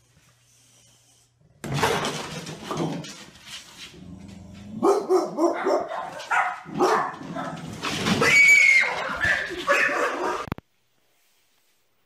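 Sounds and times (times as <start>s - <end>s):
dog barking: 4.8s - 7.6s, 8.8s - 10.5s.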